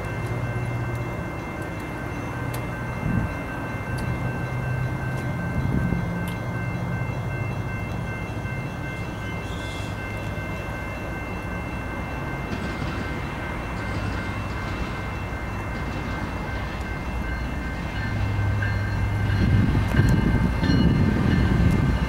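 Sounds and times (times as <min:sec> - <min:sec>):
diesel locomotives rumbling: 0:00.0 - 0:22.0.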